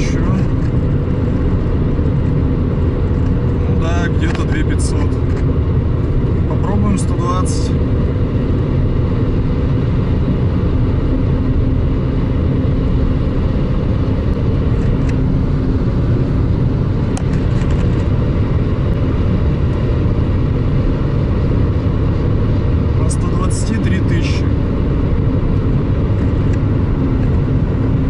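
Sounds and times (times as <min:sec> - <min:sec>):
car engine drone inside cabin: 0:00.0 - 0:28.0.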